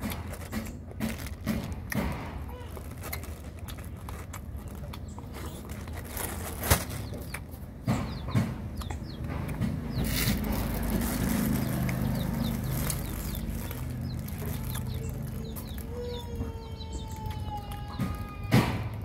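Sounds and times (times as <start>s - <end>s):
chickens clucking: 0.0s - 18.7s
small birds chirping: 2.4s - 18.5s.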